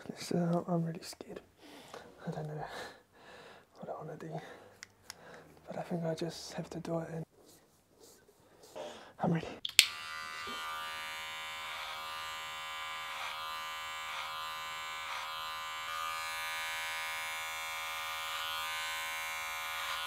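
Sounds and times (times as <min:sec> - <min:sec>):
electric hair clippers buzzing: 0:09.7 - 0:20.0.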